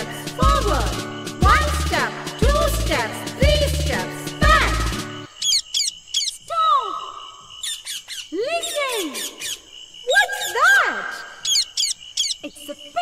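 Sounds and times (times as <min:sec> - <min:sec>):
parrot high chirps: 0:05.3 - 0:06.5, 0:07.2 - 0:12.5
parrot squawking: 0:05.4 - 0:06.4, 0:11.4 - 0:12.4.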